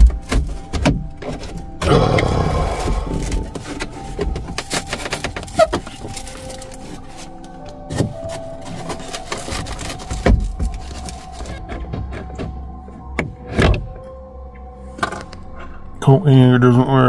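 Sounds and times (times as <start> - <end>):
fibreboard crackling and snapping: 0.0 - 12.6.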